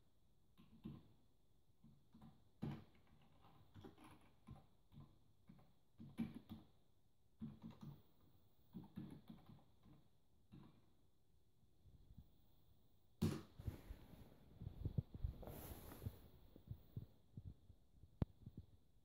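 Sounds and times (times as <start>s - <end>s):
typing on a keyboard: 0.6s - 11.0s.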